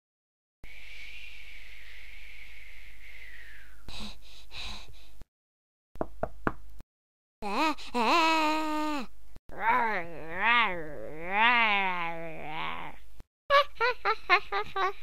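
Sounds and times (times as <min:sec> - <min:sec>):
short breathy sounds: 0:00.6 - 0:05.2.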